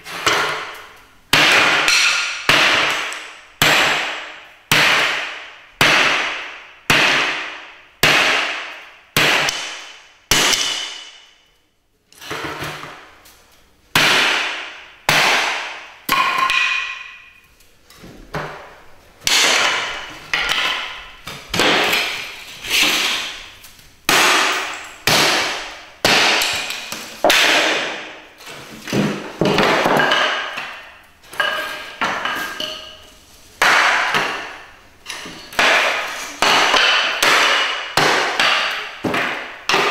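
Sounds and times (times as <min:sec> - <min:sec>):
hatchet chopping wood: 0:00.2 - 0:11.1, 0:14.0 - 0:17.0, 0:19.2 - 0:22.1, 0:24.1 - 0:28.1, 0:33.6 - 0:34.5, 0:35.6 - 0:39.9.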